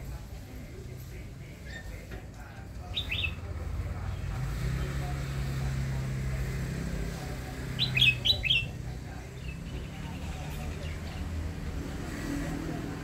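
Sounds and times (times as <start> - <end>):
bird calling clear notes: 7.8 - 8.8.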